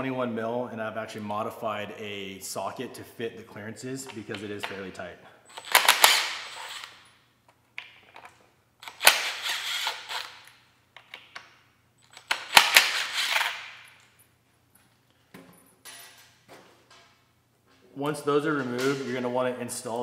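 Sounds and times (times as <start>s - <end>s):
impact wrench hammering: 12.2s - 13.8s.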